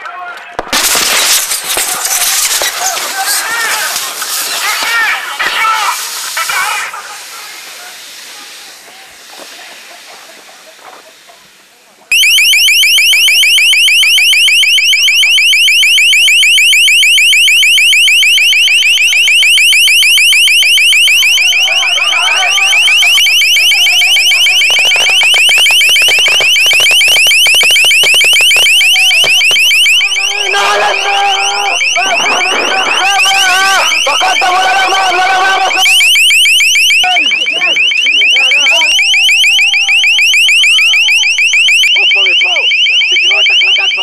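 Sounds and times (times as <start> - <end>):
faint shouted voices: 1.7 - 12.2, 20.7 - 44.0
electronic alarm rising sweep: 12.1 - 44.0.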